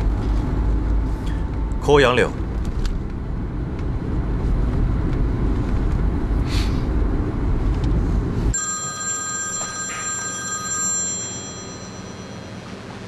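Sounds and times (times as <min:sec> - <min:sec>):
road rumble inside car: 0:00.0 - 0:08.6
mobile phone ringtone: 0:08.5 - 0:13.0.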